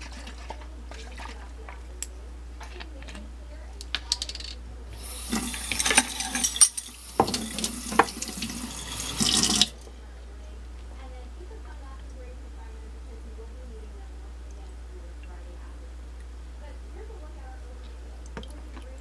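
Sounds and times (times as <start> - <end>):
utensil clinking: 4.0 - 9.7
kitchen tap running: 4.9 - 9.8.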